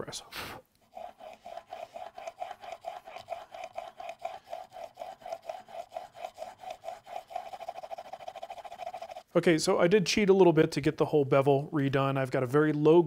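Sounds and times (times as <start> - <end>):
chisel rasping on sharpening plate: 0.8 - 9.3.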